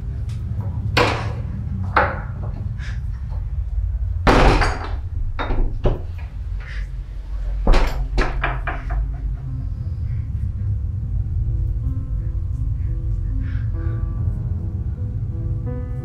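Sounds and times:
low steady hum: 0:00.0 - 0:16.0
knocks and clacks of wooden door lock: 0:07.7 - 0:09.3.

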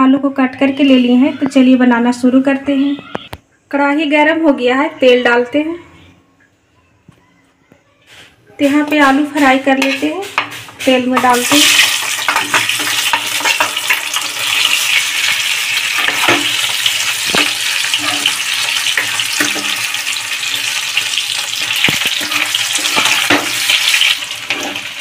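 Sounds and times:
steel spoon scraping pan: 0:08.6 - 0:20.8, 0:21.5 - 0:25.0
potatoes sizzling in oil: 0:08.6 - 0:25.0.

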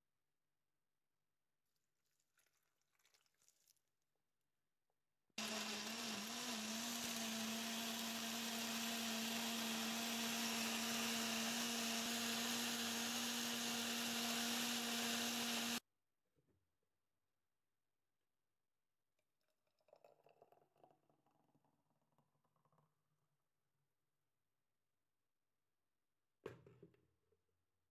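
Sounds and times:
blender motor whirring: 0:05.4 - 0:15.8.

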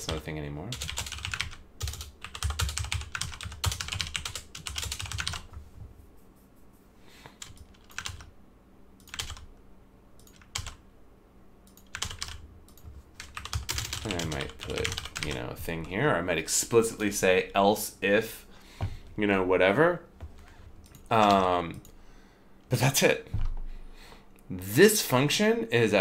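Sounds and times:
computer keyboard typing: 0:00.0 - 0:05.6, 0:07.4 - 0:08.3, 0:09.0 - 0:09.5, 0:10.2 - 0:10.8, 0:11.6 - 0:15.9, 0:20.8 - 0:21.9.

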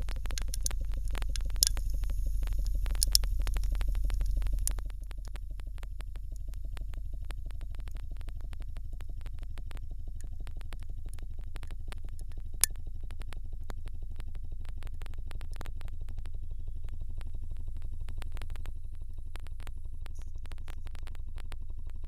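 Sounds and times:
light clicks: 0:00.0 - 0:05.4
pump droning and pulsing: 0:00.0 - 0:22.0.

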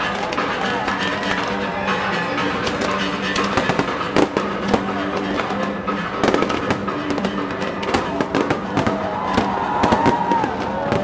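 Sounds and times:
fireworks bangs and crackles: 0:00.0 - 0:11.0
music with held notes: 0:00.0 - 0:11.0
fireworks whistling: 0:02.6 - 0:11.0.

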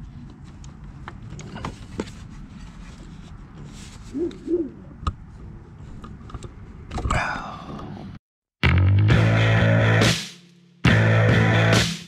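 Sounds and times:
hooting calls: 0:04.1 - 0:05.0.

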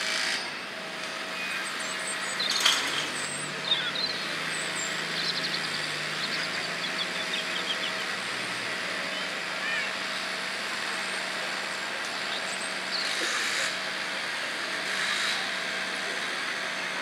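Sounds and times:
distant vehicle rumble: 0:00.0 - 0:17.0
small birds chirping: 0:01.4 - 0:10.3, 0:12.0 - 0:13.2.

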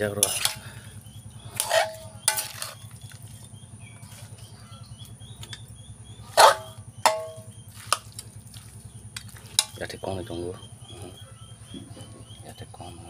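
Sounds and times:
low steady hum: 0:00.0 - 0:13.0
metal utensil clanking on pot: 0:00.1 - 0:00.6, 0:01.5 - 0:02.9, 0:06.3 - 0:08.1, 0:09.2 - 0:09.9.

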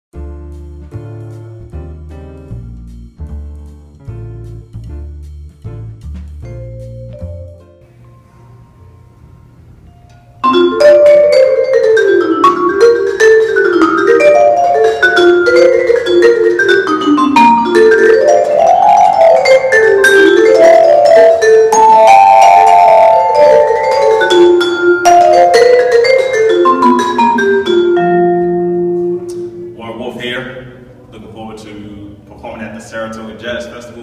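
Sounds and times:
vibraphone played with mallets: 0:06.4 - 0:07.9, 0:09.9 - 0:30.2.

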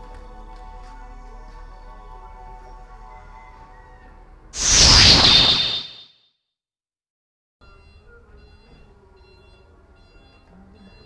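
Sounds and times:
whoosh with faint whistle: 0:04.6 - 0:06.1.

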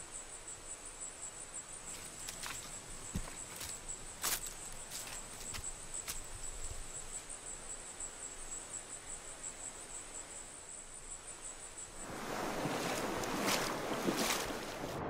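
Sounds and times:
insects trilling: 0:00.0 - 0:15.0
stream water rushing: 0:11.8 - 0:15.0
splashes in water: 0:12.0 - 0:15.0.

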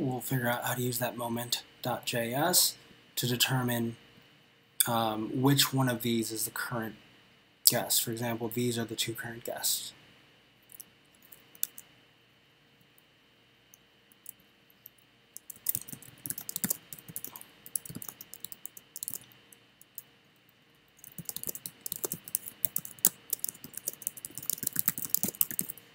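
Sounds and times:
keyboard typing: 0:15.4 - 0:19.3, 0:21.0 - 0:25.8.

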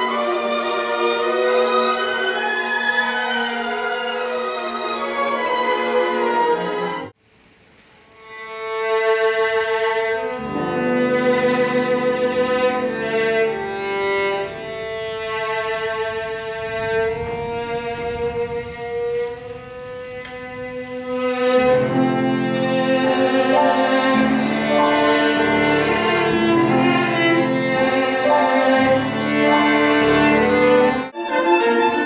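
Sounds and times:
violin slow melody: 0:00.0 - 0:07.2, 0:08.1 - 0:32.0
piano accompaniment: 0:09.9 - 0:32.0.

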